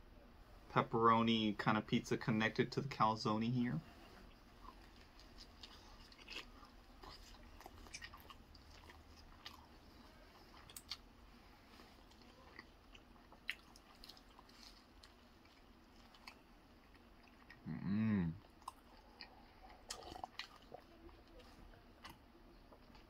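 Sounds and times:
chewing pizza: 3.8s - 23.0s.

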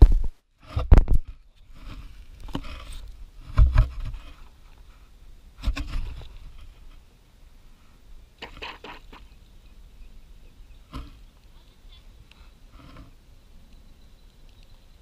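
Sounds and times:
rubbery scraping and rustling: 0.0s - 5.0s, 5.6s - 7.0s, 8.4s - 9.3s.

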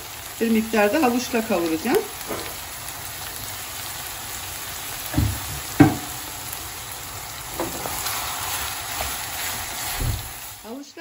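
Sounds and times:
meat sizzling in a frying pan: 0.0s - 11.0s
wooden spoon knocking on pan: 5.1s - 6.2s, 7.6s - 7.9s.

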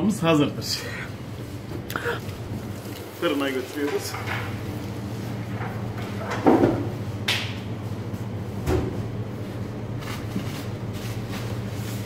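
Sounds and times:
low hum of kitchen equipment: 0.0s - 12.0s.

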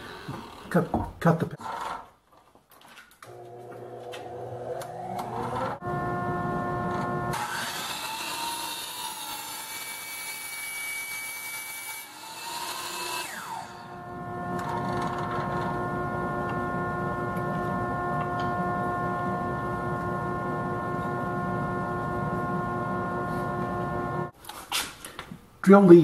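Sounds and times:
miter saw cutting wood: 0.0s - 1.0s, 3.3s - 24.3s
saw motor winding down: 0.0s - 1.0s, 3.3s - 24.3s
dust vacuum hum: 3.3s - 8.7s, 13.4s - 24.3s.

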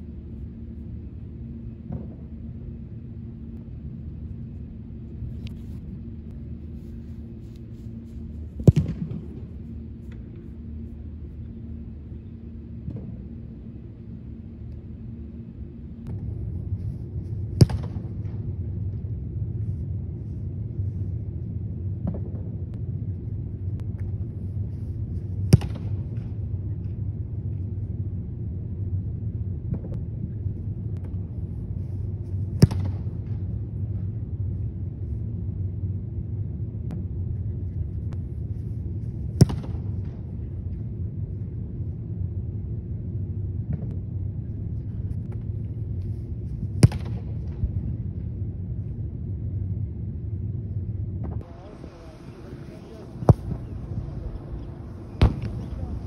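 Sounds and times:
steady low rumble: 0.0s - 56.0s
football kick thuds with echo: 8.4s - 10.2s, 17.5s - 18.4s, 25.4s - 26.0s, 32.5s - 33.1s, 39.3s - 40.2s, 46.8s - 47.5s, 53.0s - 54.2s, 55.1s - 56.0s.

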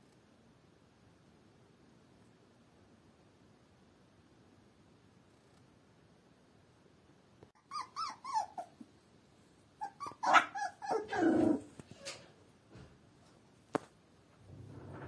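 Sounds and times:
puppy whimpering and yelping: 7.6s - 8.9s, 9.8s - 11.8s.

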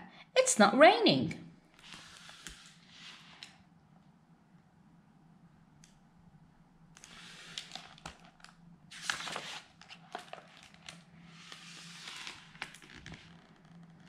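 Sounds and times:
book pages rustling: 1.8s - 3.6s, 7.0s - 13.8s.

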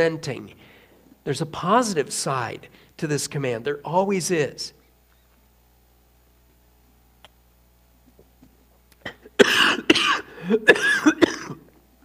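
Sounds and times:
man coughing: 9.0s - 11.7s.

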